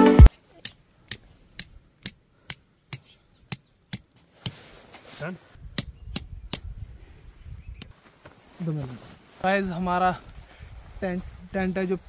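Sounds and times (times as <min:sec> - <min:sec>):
tent pegs being hammered: 0:00.6 - 0:04.6, 0:05.8 - 0:06.7.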